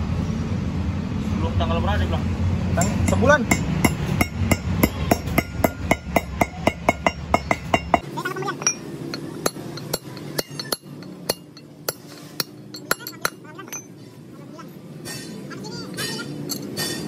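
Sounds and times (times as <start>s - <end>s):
hammer blows ringing on steel: 2.8s - 14.0s.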